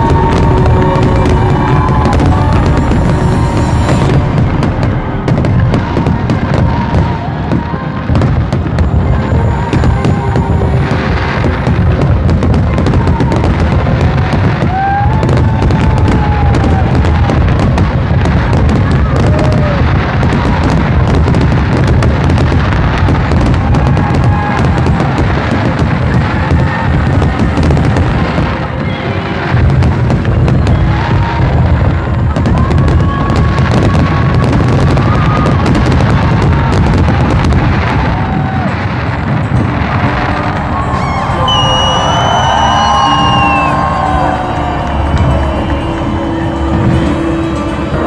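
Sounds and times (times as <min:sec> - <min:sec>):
high held tone: 0:00.0 - 0:07.5, 0:40.2 - 0:48.0
fireworks booming: 0:00.0 - 0:48.0
fireworks crackling: 0:00.0 - 0:48.0.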